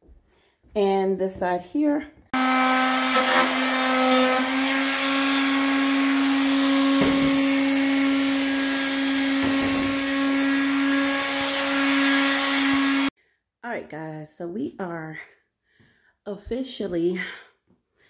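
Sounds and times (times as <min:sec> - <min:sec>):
power tool motor whining: 0:02.4 - 0:13.1.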